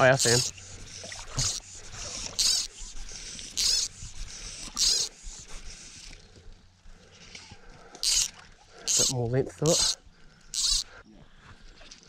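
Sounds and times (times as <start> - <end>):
fly reel drag buzzing: 0.0 - 6.2, 8.0 - 11.0.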